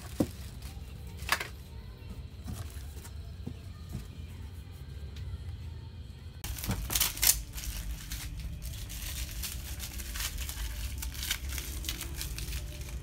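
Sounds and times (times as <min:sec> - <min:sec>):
plastic packaging crinkling: 0:06.4 - 0:13.0.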